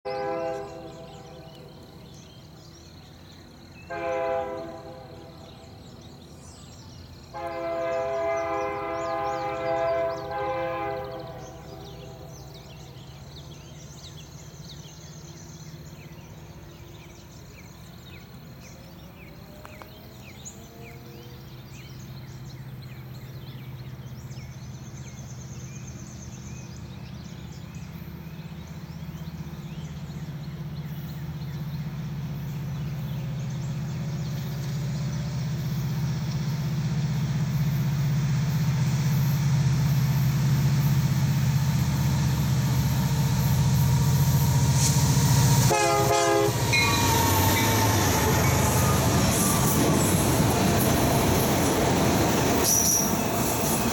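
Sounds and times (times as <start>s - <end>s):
locomotive air horn blasts: 0.1s - 1.5s, 3.9s - 5.4s, 7.3s - 12.3s, 45.5s - 49.8s
birds chirping: 0.1s - 53.9s
locomotive engine rumble: 0.1s - 53.9s.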